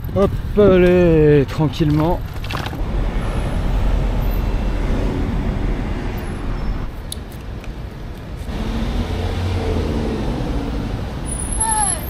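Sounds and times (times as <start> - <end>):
road traffic noise: 0.0 - 12.0
engine hum: 1.8 - 12.0.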